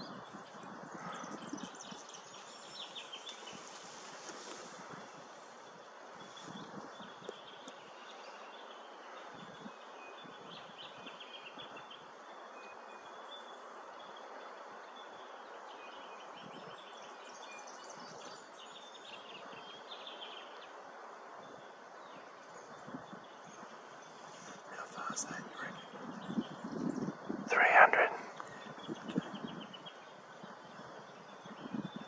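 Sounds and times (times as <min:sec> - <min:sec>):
faint hiss: 0:01.8 - 0:10.0, 0:17.2 - 0:25.9, 0:27.5 - 0:28.8.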